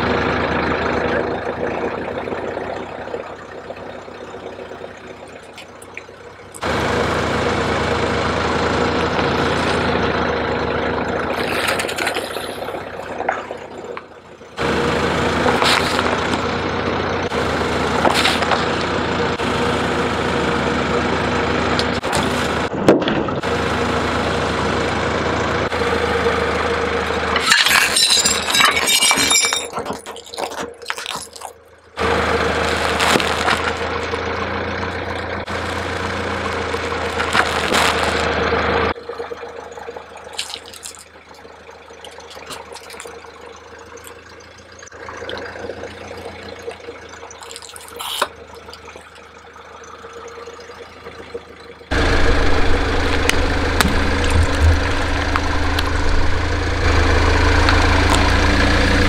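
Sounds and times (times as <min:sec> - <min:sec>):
car engine idling: 0:00.0 - 0:30.8, 0:31.6 - 0:59.0
tyre crunching brittle object: 0:27.4 - 0:31.6, 0:32.7 - 0:33.9, 0:37.2 - 0:38.2, 0:40.3 - 0:41.1, 0:47.4 - 0:48.4.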